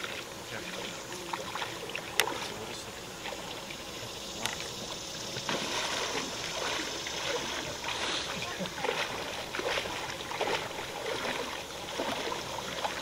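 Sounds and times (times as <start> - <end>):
lake water lapping: 0.0 - 13.0.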